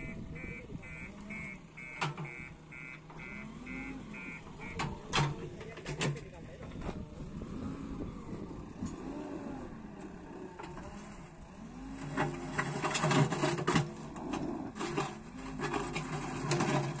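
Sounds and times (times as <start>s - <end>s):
diesel engine running: 0.0s - 17.0s
stones scraping against bucket: 12.3s - 17.0s.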